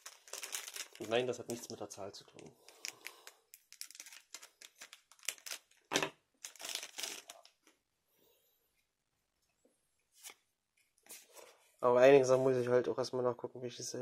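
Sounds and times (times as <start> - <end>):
foil wrapper crinkling: 0.0 - 1.7, 2.6 - 5.8, 6.4 - 7.6
trading cards being handled: 2.4 - 7.7.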